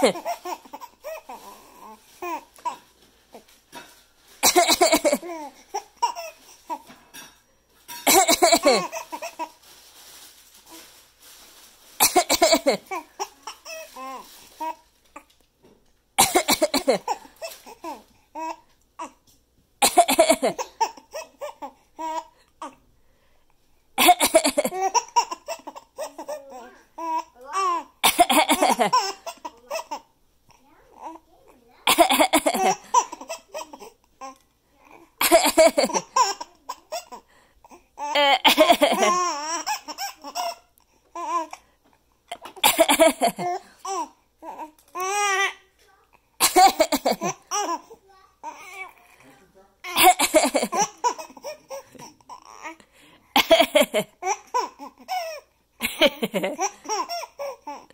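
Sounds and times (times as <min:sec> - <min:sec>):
baby laughing: 0:00.0 - 0:01.4, 0:08.0 - 0:09.5, 0:24.0 - 0:30.1, 0:31.9 - 0:33.9, 0:38.0 - 0:40.6, 0:42.3 - 0:44.1, 0:46.4 - 0:47.9, 0:49.9 - 0:52.6
adult fake cough: 0:04.4 - 0:05.3, 0:07.9 - 0:09.0, 0:12.0 - 0:12.9, 0:16.2 - 0:17.2, 0:19.8 - 0:20.9, 0:24.0 - 0:24.8, 0:28.0 - 0:29.0, 0:31.9 - 0:33.3, 0:35.2 - 0:36.2, 0:38.2 - 0:39.2, 0:42.3 - 0:43.6, 0:46.4 - 0:47.4, 0:49.9 - 0:51.3, 0:53.3 - 0:54.1.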